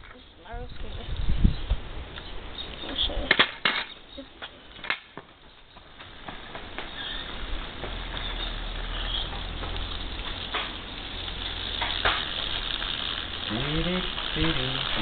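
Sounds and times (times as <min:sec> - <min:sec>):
water spraying from leaking tank: 0:06.9 - 0:15.0.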